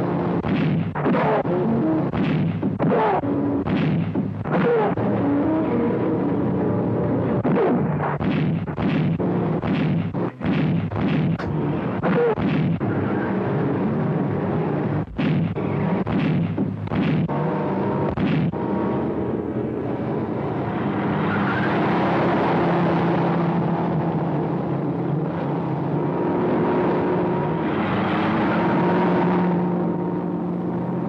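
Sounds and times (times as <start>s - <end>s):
sharp bangs: 0.0s - 5.6s, 7.3s - 24.1s.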